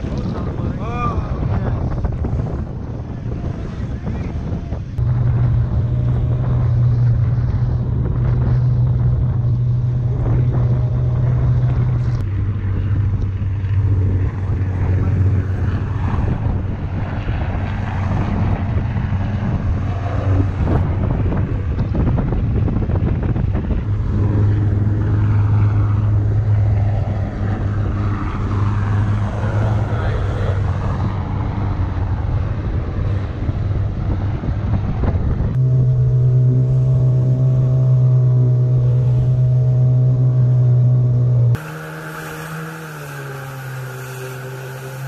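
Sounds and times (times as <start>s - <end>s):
outboard motor running: 0.0s - 45.0s
wind buffeting microphone: 0.0s - 45.0s
water rushing: 35.6s - 45.0s.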